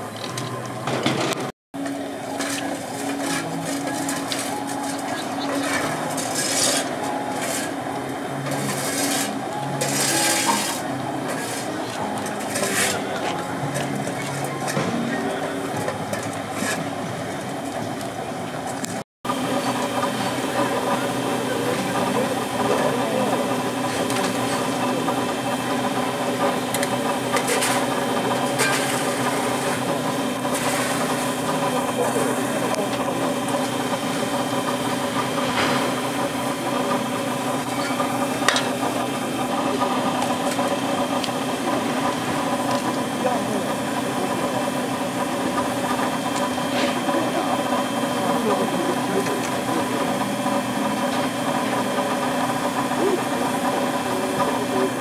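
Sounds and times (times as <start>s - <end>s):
steady mechanical hum: 0.0s - 55.0s
many people talking: 1.8s - 55.0s.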